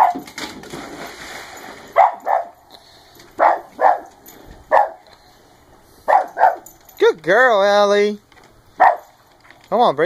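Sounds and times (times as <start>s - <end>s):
dog barking: 0.0s - 0.2s, 2.0s - 2.6s, 3.4s - 5.1s, 6.1s - 6.7s, 8.8s - 9.2s.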